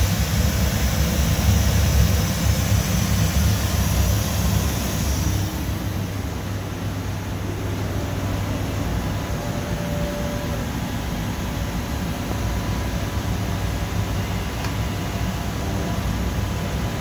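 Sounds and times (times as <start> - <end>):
machine humming: 0.0 - 17.0
brief faint tone: 9.3 - 10.6.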